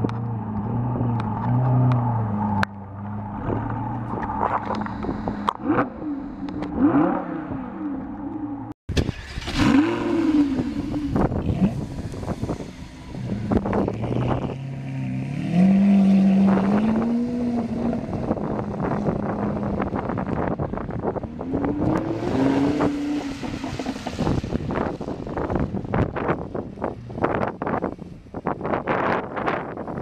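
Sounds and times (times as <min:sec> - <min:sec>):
wind buffeting microphone: 0:00.0 - 0:07.8, 0:08.9 - 0:30.0
sports car accelerating away: 0:00.1 - 0:08.7, 0:09.3 - 0:20.3, 0:21.1 - 0:25.6
second sports car pulling away: 0:00.2 - 0:20.3.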